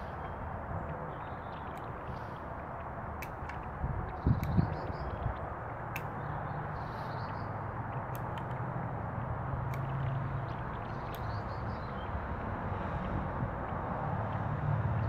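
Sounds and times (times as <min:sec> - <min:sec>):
scissors snipping twigs: 0:01.6 - 0:11.4.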